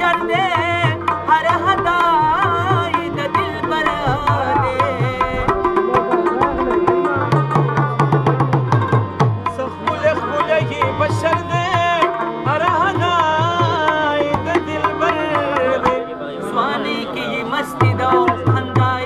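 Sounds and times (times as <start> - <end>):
person singing: 0.0 - 8.8
tabla strokes: 0.0 - 16.0
harmonium and rubab: 0.0 - 19.0.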